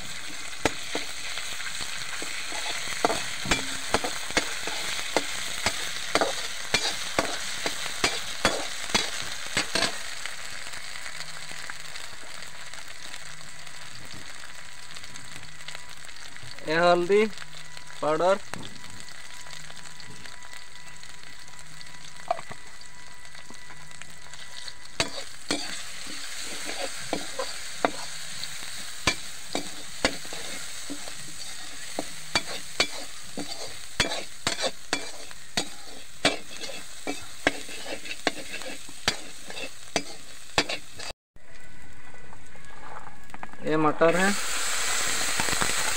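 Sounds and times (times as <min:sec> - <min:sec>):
onion frying in oil: 0:00.0 - 0:45.9
metal spoon scraping pan: 0:02.2 - 0:10.0, 0:25.0 - 0:28.2, 0:29.0 - 0:41.1.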